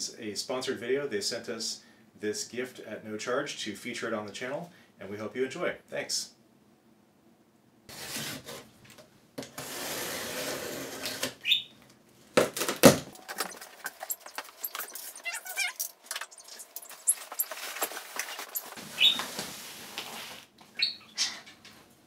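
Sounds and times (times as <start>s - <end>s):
cardboard rustling and scraping: 7.9s - 8.7s, 12.6s - 20.5s
small clicks and rustles: 13.1s - 20.8s.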